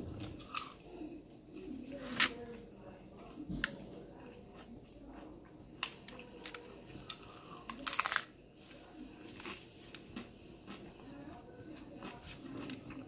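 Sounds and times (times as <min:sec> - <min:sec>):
chewing crunchy taco: 0:00.0 - 0:02.4, 0:03.1 - 0:13.0
loud crunches of biting: 0:07.1 - 0:08.4.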